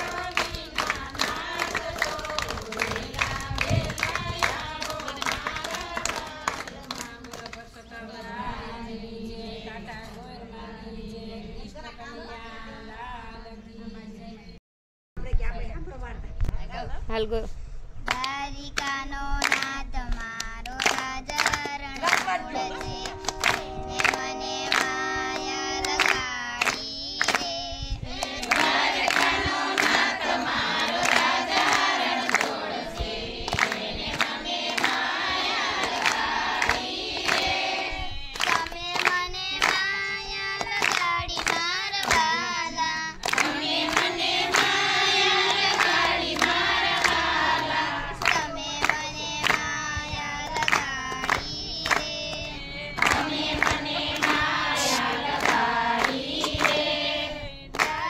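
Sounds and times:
people singing together: 0.0 - 14.6, 18.8 - 58.0
sharp rhythmic strikes: 22.2 - 27.5.

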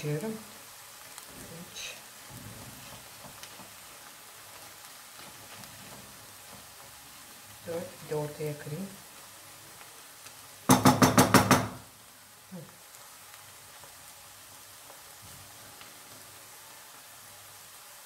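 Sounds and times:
faint sizzling in a pan: 0.0 - 18.0
wooden spoon tapping frying pan: 2.2 - 7.0, 10.7 - 11.9.

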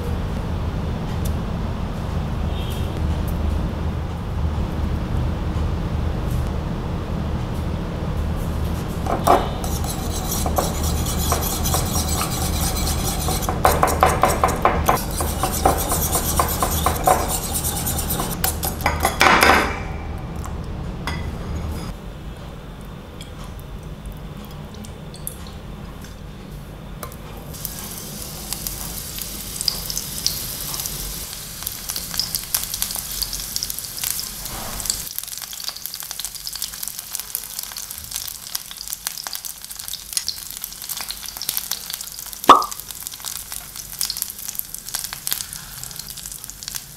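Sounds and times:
whisk clinking in ceramic bowl: 9.2 - 19.2
oil sizzling in frying pan: 27.5 - 46.9.

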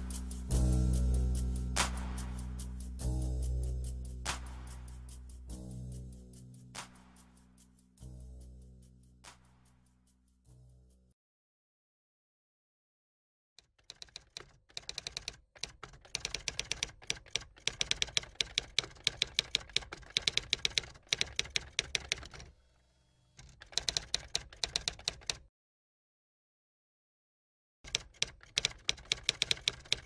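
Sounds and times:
keyboard key clicks: 27.9 - 30.0.

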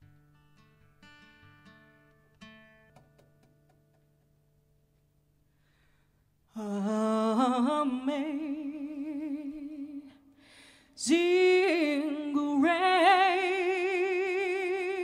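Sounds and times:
breath: 5.5 - 6.3, 10.3 - 11.0
woman singing wordless vocalise: 6.5 - 15.0.

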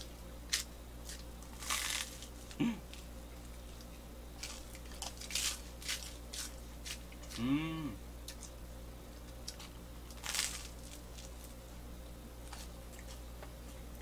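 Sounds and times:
crunchy bites and chewing: 0.0 - 11.6
person humming: 2.5 - 2.9, 7.3 - 8.0.

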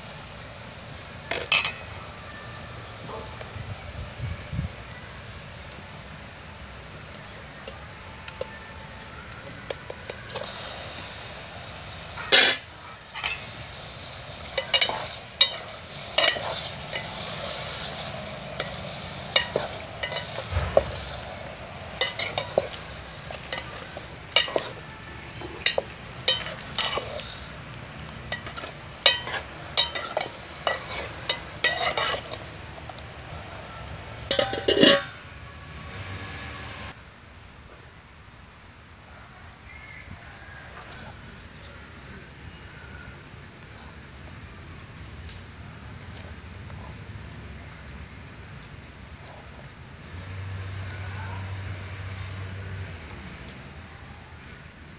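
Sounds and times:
curry sizzling in a pot: 0.0 - 37.0
ladle scraping a metal pot: 12.2 - 13.6, 14.3 - 21.1, 22.0 - 27.5, 28.3 - 32.6, 34.3 - 35.3.

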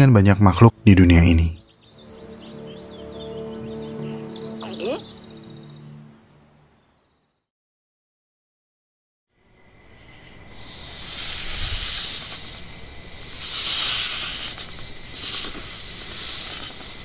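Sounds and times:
crickets and insects chirring: 9.3 - 17.0
hissing noise: 10.5 - 17.0.

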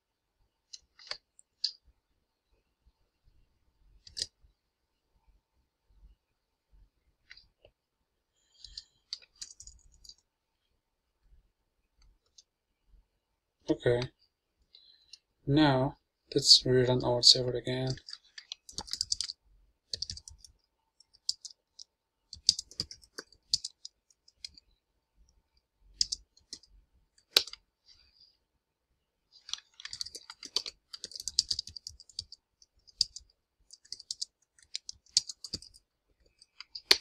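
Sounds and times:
typing on computer keyboard: 4.0 - 4.3, 8.6 - 10.2, 17.9 - 24.6, 26.0 - 27.6, 29.4 - 37.0.

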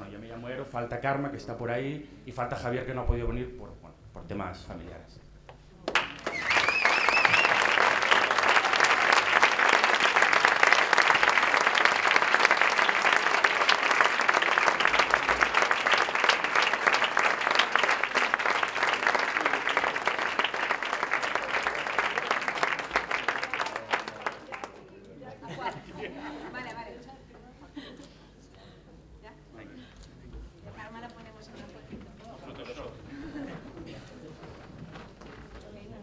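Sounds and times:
audience applauding: 5.9 - 24.9.

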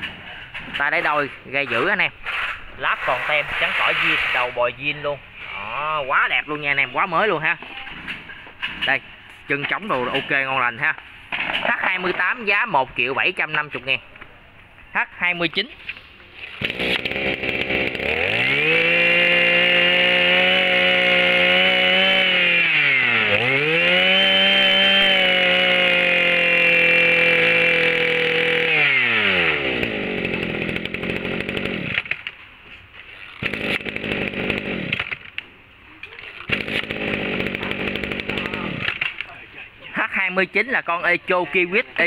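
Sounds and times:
brush cutter engine revving: 16.5 - 32.2, 33.2 - 35.3, 36.3 - 39.2.

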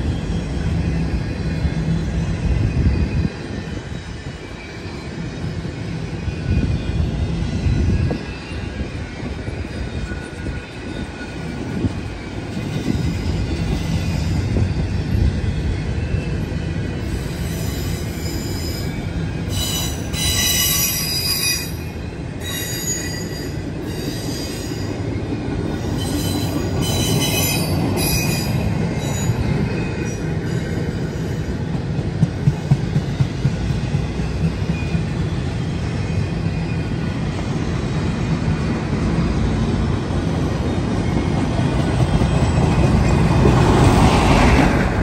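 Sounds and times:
freight train rumbling past: 0.0 - 45.0
high-pitched wheel squeal: 17.1 - 25.0, 25.8 - 31.5.

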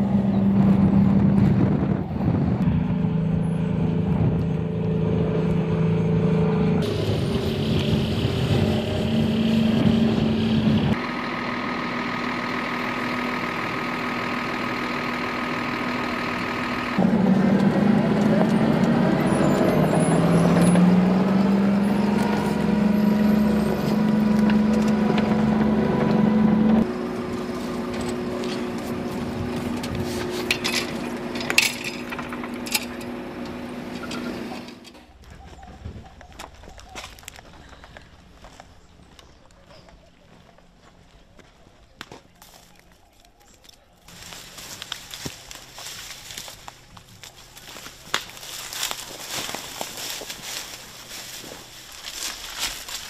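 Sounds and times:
armoured car engine under load: 0.0 - 53.0
military vehicle engines idling: 0.0 - 53.0
gear rattles: 29.5 - 33.2.

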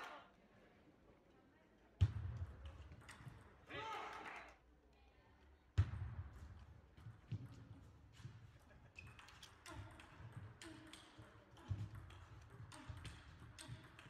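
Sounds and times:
table tennis ball clicking: 9.1 - 14.0.

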